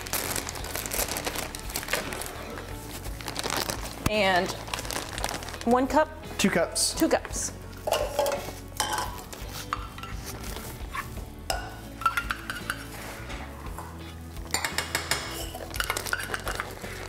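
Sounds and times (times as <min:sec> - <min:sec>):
metal spoon clinking on metal: 0:07.9 - 0:09.2, 0:14.5 - 0:16.6.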